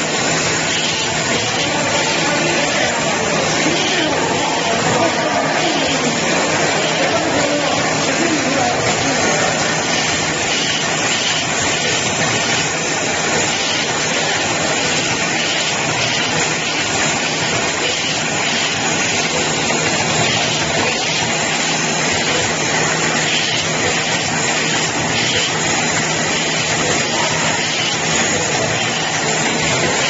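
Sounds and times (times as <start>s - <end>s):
packaging machine running: 0.0s - 30.0s.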